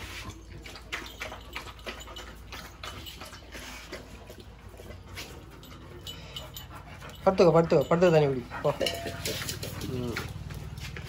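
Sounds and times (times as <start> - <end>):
dog lapping water: 0.0 - 5.7.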